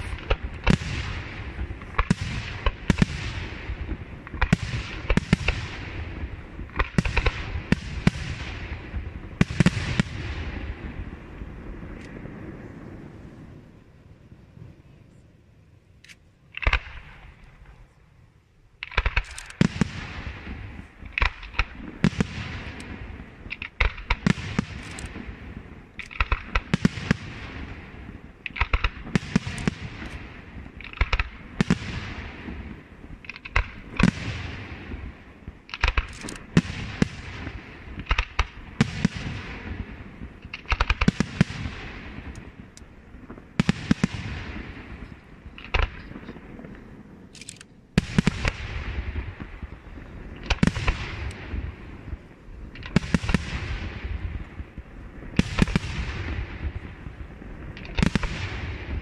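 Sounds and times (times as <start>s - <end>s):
firework shells bursting: 18.8s - 25.3s.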